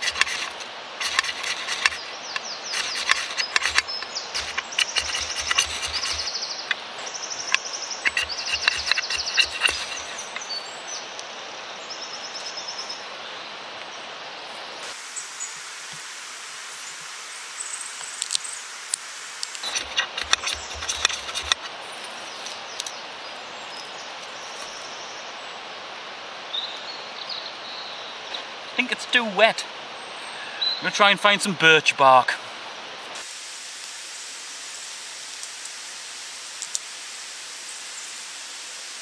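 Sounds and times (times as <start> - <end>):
scrapes: 0.0 - 10.6, 19.5 - 22.7
outdoor hiss: 0.0 - 20.4, 21.0 - 39.0
ferro rod rasping strikes: 7.5 - 10.5.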